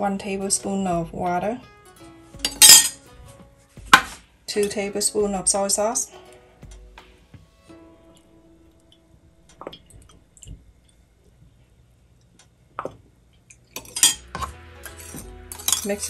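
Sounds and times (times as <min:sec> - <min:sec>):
metal spoon clinking glass bowl: 0:02.4 - 0:03.0, 0:13.8 - 0:16.0
spoon scraping bowl: 0:13.8 - 0:16.0.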